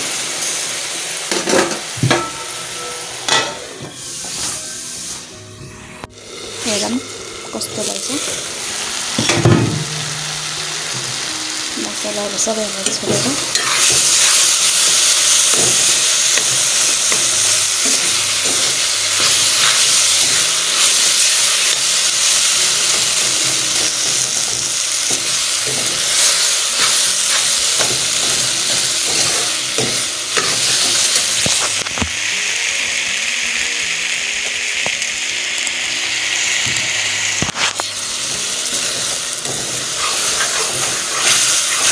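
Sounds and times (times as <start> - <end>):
food sizzling in a pan: 0.0 - 41.9
spoon stirring and scraping: 13.5 - 15.6, 39.5 - 41.9.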